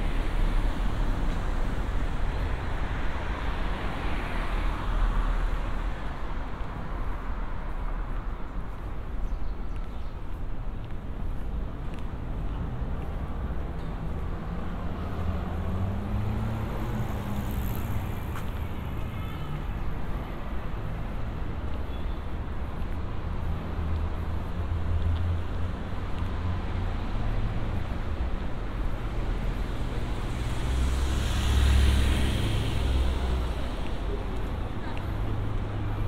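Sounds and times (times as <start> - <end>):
low rumble of cars: 0.0 - 36.0
vehicle passing with tyre hiss: 29.8 - 33.6.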